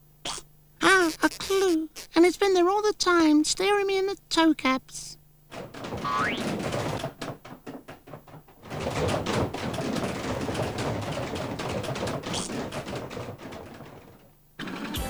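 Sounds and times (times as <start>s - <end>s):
cartoon clatter of knocks and thumps: 5.5s - 15.0s
cartoon footsteps running down stairs: 5.5s - 15.0s.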